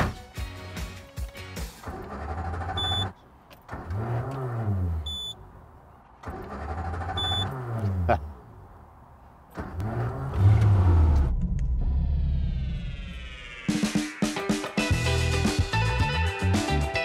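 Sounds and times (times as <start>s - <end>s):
car engine revving: 9.5s - 13.4s.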